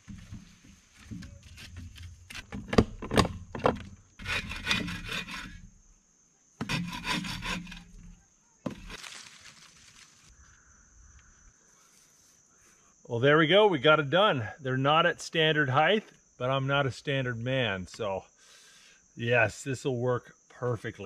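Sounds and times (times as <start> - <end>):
wooden poles scraping: 0.0 - 5.8, 6.6 - 10.3.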